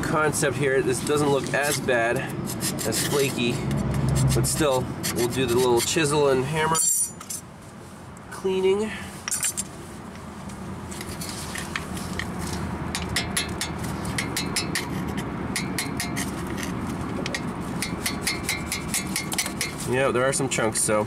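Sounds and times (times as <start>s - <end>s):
hammer tapping chisel on metal: 12.9s - 14.9s, 15.5s - 16.2s, 17.2s - 19.8s.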